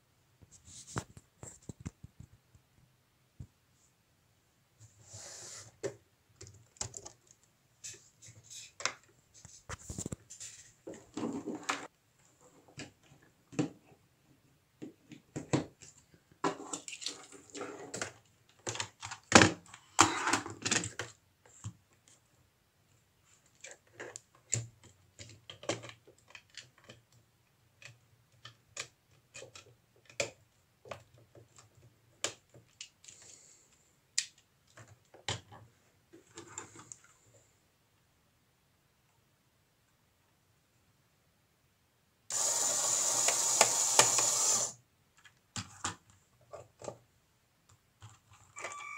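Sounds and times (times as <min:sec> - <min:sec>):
plastic parts clicking and rattling: 0:16.6 - 0:21.2, 0:23.4 - 0:27.2, 0:27.8 - 0:33.3.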